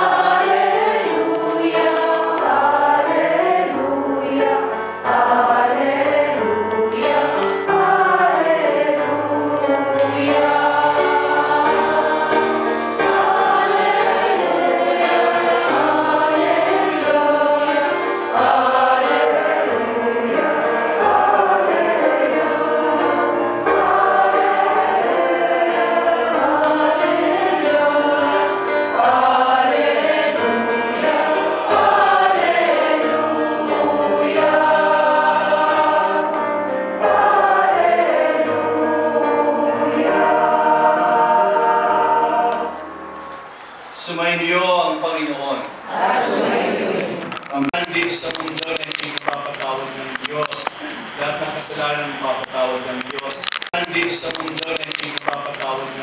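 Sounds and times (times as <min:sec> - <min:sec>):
congregation singing a hymn: 0:00.0 - 0:56.0.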